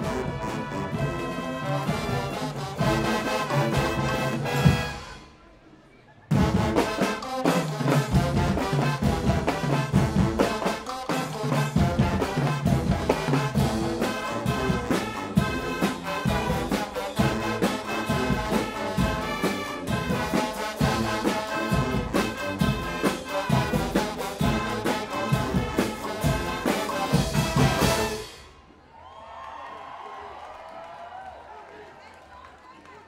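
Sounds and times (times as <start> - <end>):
brass band playing loudly: 0.0 - 5.5, 6.3 - 28.6
drum kit with crashing cymbals: 6.3 - 28.6.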